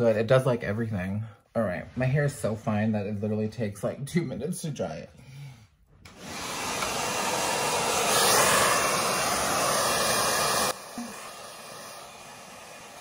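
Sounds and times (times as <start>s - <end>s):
hair dryer blowing: 6.1s - 13.0s.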